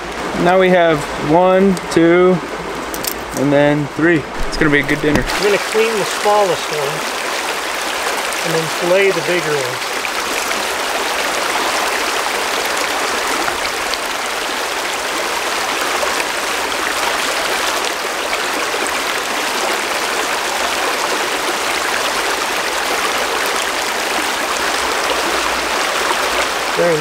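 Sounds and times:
water rushing over stones: 4.3s - 27.0s.

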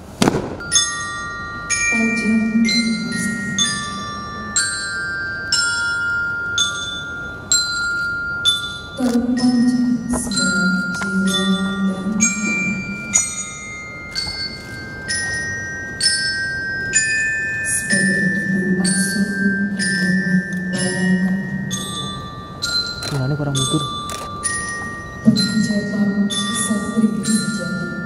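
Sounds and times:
low held tone: 0.0s - 28.0s
mallet percussion notes: 0.6s - 28.0s.

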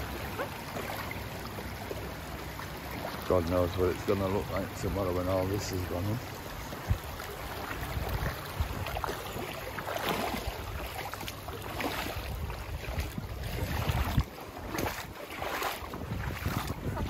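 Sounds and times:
wind buffeting microphone: 3.3s - 11.0s, 12.0s - 17.0s.

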